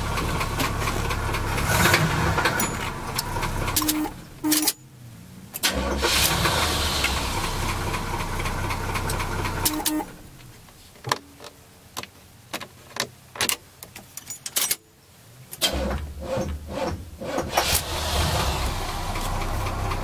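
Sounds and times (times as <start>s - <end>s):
car engine idling: 0.0s - 4.5s, 5.6s - 10.7s, 15.9s - 20.0s.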